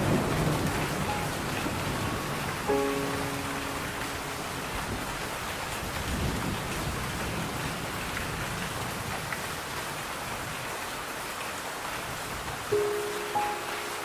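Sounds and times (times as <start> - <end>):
thunder rumble: 0.0 - 9.1
steady rain: 0.0 - 14.0.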